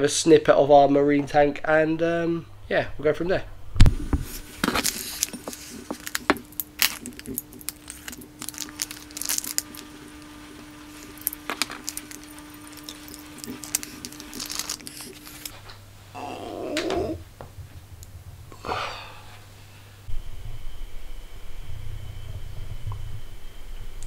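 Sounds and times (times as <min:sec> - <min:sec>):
plastic bag crinkling: 0:04.2 - 0:15.6.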